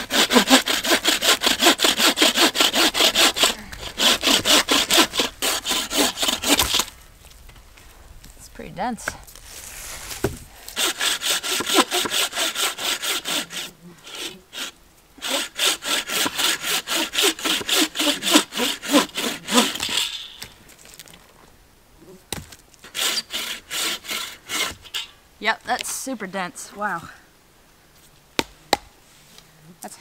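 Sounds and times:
hand saw cutting log: 0.0 - 6.9, 10.1 - 20.2, 22.8 - 25.1.

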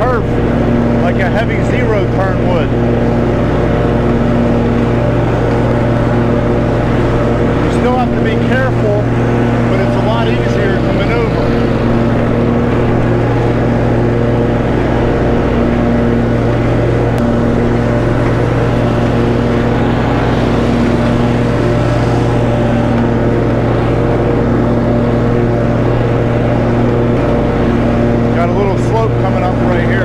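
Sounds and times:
lawn mower engine running: 0.0 - 30.0.

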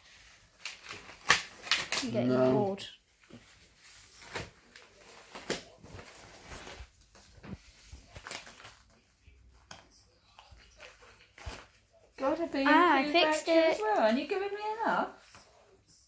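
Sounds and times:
paper rustling and tearing: 0.0 - 2.6, 3.2 - 9.1, 10.6 - 11.9.

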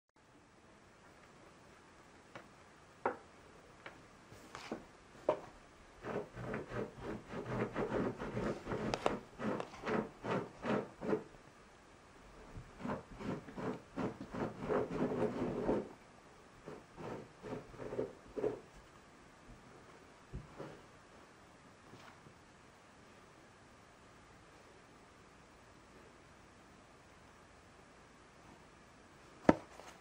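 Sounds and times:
fingers rubbing on cardboard: 6.0 - 11.4, 12.6 - 16.0, 16.6 - 18.7.

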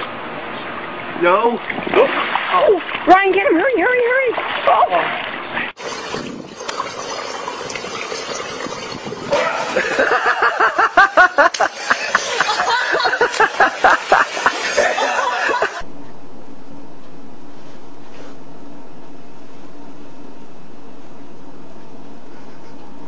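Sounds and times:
water splashing and sloshing: 0.6 - 15.8
person laughing hard: 9.4 - 15.8.

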